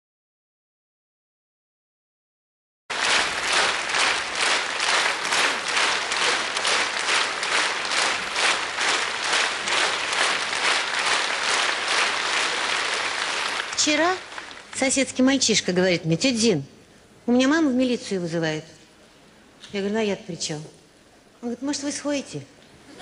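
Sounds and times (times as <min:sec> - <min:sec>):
audience clapping in unison: 0:02.9 - 0:15.2.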